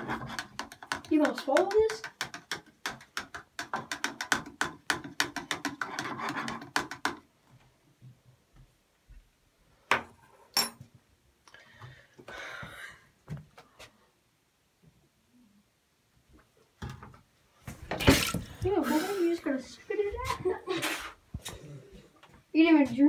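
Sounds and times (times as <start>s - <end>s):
metal spoon stirring in plastic cup: 0.0s - 7.1s.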